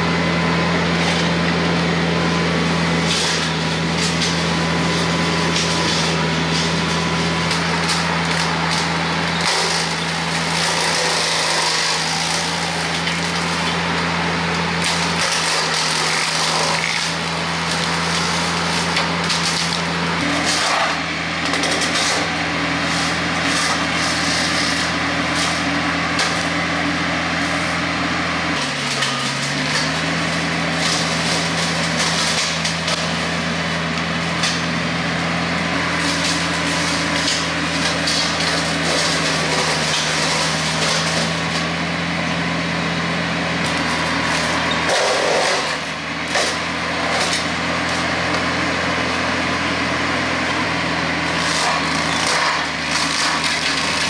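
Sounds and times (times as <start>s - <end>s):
tractor diesel engine under load: 0.0s - 54.0s
wood crackling and snapping: 43.7s - 47.5s, 51.3s - 54.0s.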